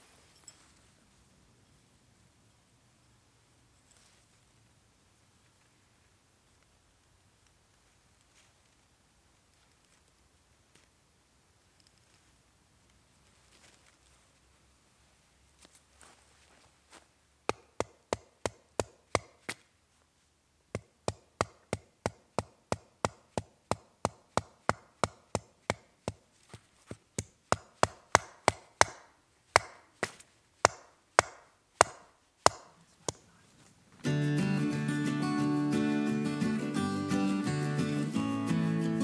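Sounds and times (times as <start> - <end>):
acoustic guitar music: 34.0 - 39.0.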